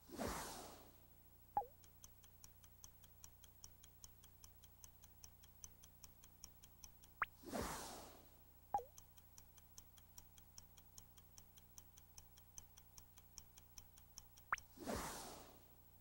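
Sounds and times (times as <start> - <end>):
faint electronic ticking: 0.4 - 16.0
rising zip and whoosh: 14.8 - 15.6.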